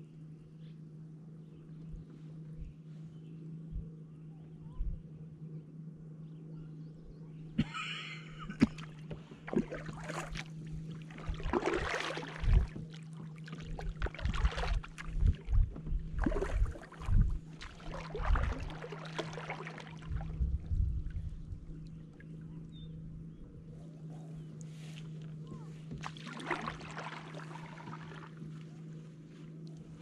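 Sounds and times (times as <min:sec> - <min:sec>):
steady low hum: 0:00.0 - 0:30.0
kayak paddle splashing: 0:08.5 - 0:20.4, 0:24.6 - 0:29.0.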